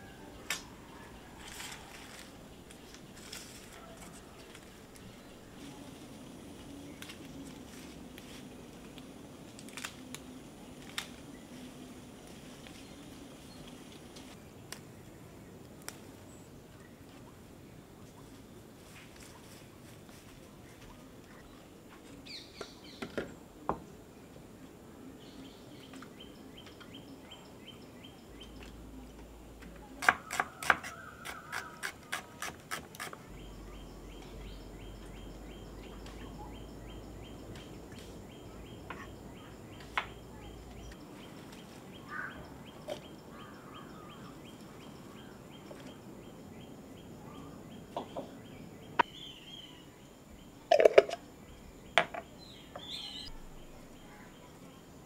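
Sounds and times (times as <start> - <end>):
bird calls: 29.7 - 49.9.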